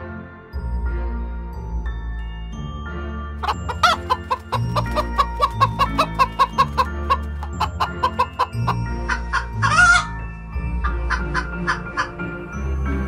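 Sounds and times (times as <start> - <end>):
background music: 0.0 - 13.0
hen squawk: 3.4 - 10.1
hens clucking: 3.4 - 10.1.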